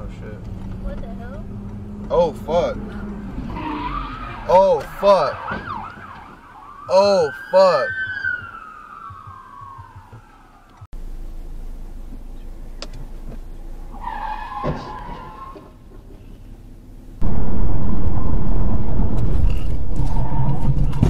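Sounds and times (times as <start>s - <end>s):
car engine and tyre noise: 0.0s - 21.0s
tyres squealing: 2.9s - 5.8s, 13.9s - 15.8s
cars crashing: 13.9s - 15.8s.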